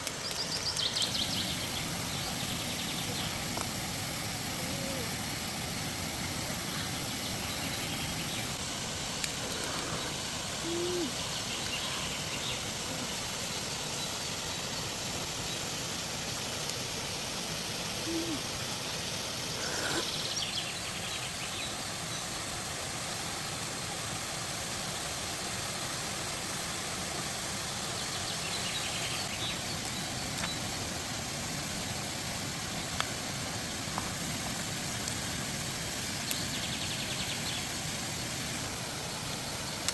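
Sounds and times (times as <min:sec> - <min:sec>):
outdoor background hiss: 0:00.0 - 0:39.9
low hoot-like calls: 0:04.5 - 0:05.2, 0:09.8 - 0:11.2, 0:18.0 - 0:18.5.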